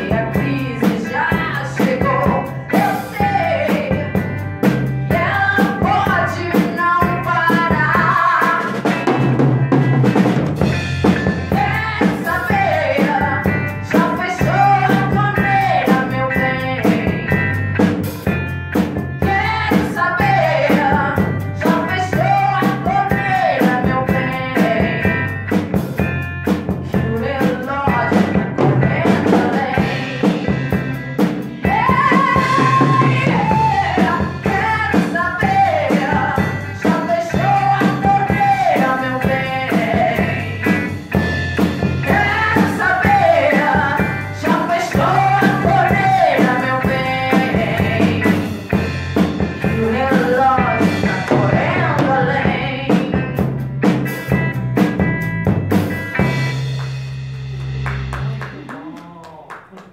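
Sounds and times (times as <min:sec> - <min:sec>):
woman singing into microphone: 0:00.0 - 0:04.2, 0:05.1 - 0:08.9, 0:11.5 - 0:17.4, 0:19.2 - 0:25.3, 0:26.8 - 0:30.6, 0:31.6 - 0:40.7, 0:42.0 - 0:48.4, 0:49.6 - 0:53.3
electric guitars: 0:00.0 - 0:59.1
drum kit steady beat: 0:00.0 - 0:59.9.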